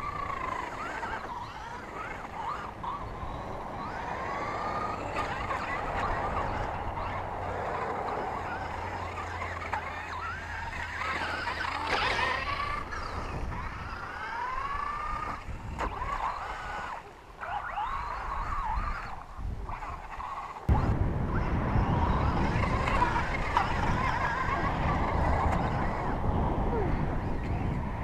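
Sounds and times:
electric motor whining: 0.0s - 28.0s
steady rushing noise: 18.6s - 28.0s.

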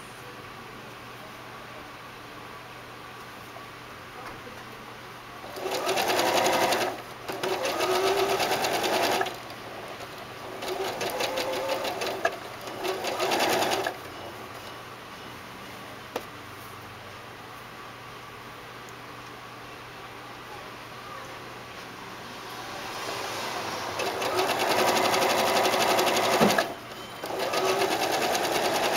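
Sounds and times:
sewing machine stitching: 5.4s - 14.0s, 23.9s - 28.9s.

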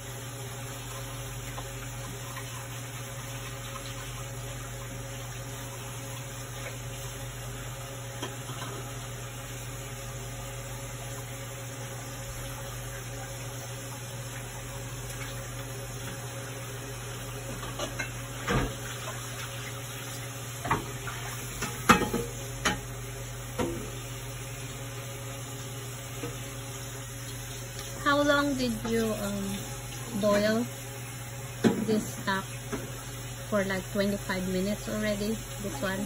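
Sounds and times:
metal pots clanking: 21.6s - 22.8s.

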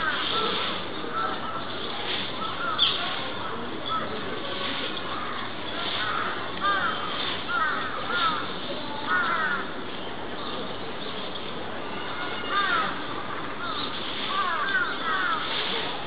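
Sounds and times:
birds calling: 0.0s - 9.8s, 12.1s - 16.0s
steady background hiss: 0.0s - 16.0s.

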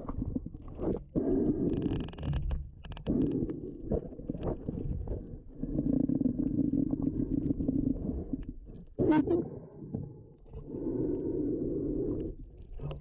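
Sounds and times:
muffled breathing through snorkel: 10.5s - 12.8s.

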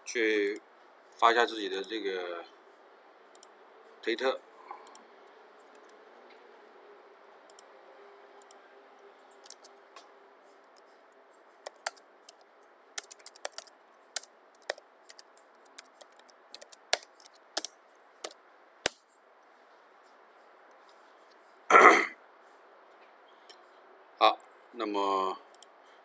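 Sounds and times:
keyboard key clicks: 9.4s - 9.7s, 11.6s - 19.0s.

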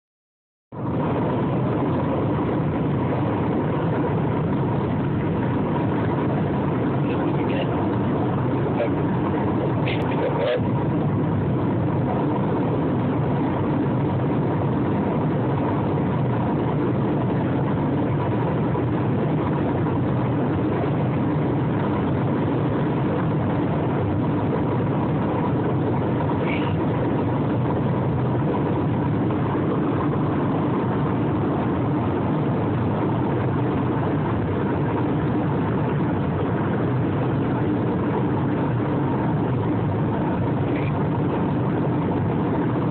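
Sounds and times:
car engine rumble inside cabin: 0.7s - 42.9s.

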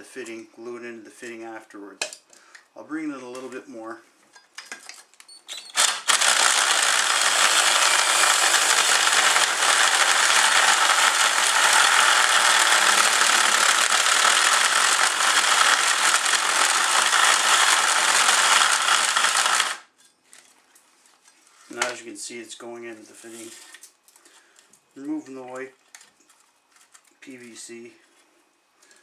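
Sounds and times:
drill cutter grinding pipe: 5.7s - 19.9s.

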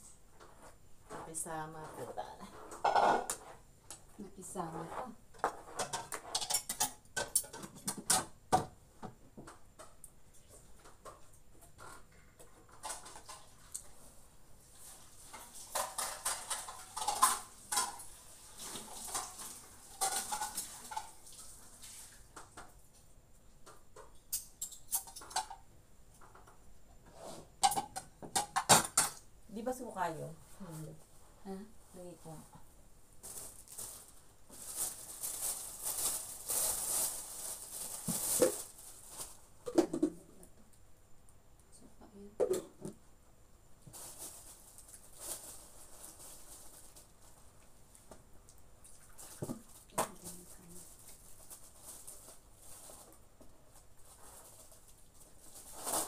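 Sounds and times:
plastic bag crinkling: 33.2s - 39.6s, 43.9s - 47.6s, 49.0s - 56.0s.

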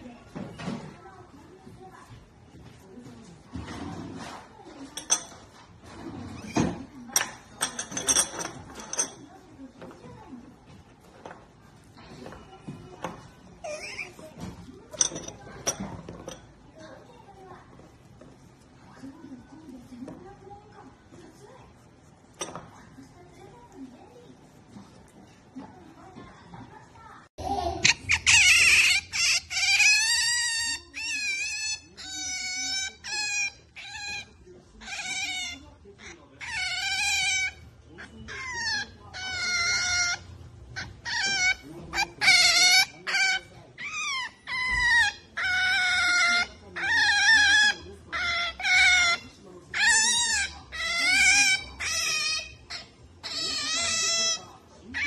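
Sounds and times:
otter squealing: 13.5s - 14.5s, 27.8s - 55.0s.

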